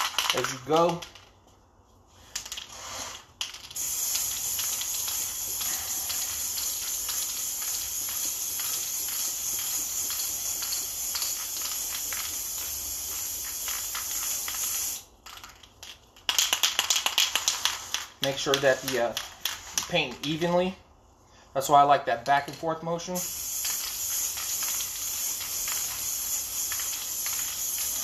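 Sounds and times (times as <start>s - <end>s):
aerosol spray can hissing: 2.6s - 15.1s, 16.7s - 20.0s, 23.2s - 28.0s.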